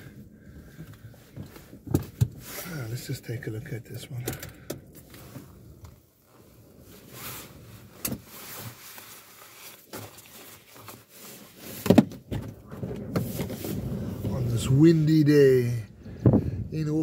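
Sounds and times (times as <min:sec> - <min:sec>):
car rumble from inside cabin: 0:12.2 - 0:17.0
wind buffeting: 0:12.6 - 0:17.0.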